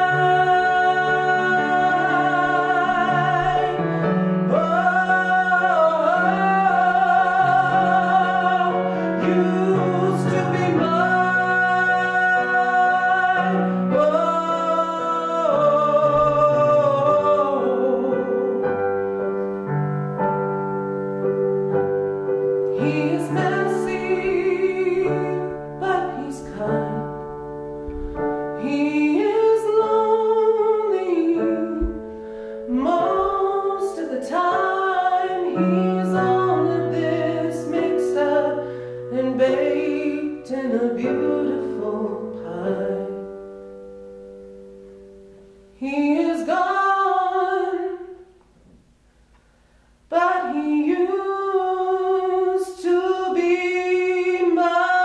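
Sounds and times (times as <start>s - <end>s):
man singing a slow ballad: 0.0s - 18.8s, 22.7s - 27.2s
piano accompaniment: 0.0s - 49.0s, 50.0s - 55.0s.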